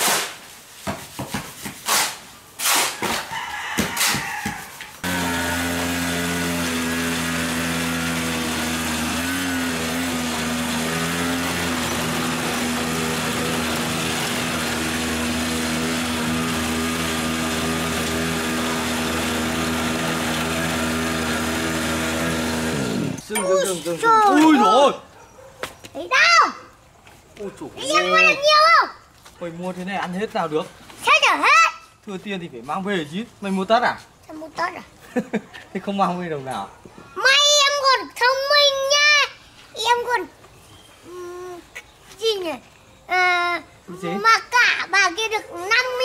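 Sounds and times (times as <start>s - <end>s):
shovel scraping wet mortar: 0.0s - 0.6s, 1.7s - 3.3s
small motor running: 5.0s - 23.2s.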